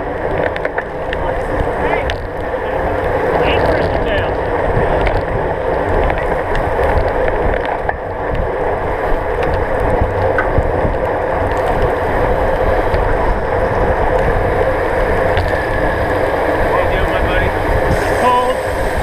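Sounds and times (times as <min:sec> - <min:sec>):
wind rushing over microphone: 0:00.0 - 0:19.0
tyres hissing on wet pavement: 0:14.3 - 0:19.0.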